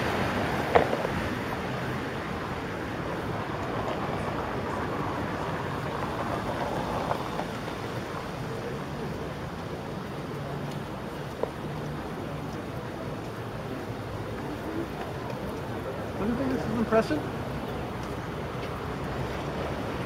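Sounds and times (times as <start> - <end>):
city street traffic: 0.0 - 20.0.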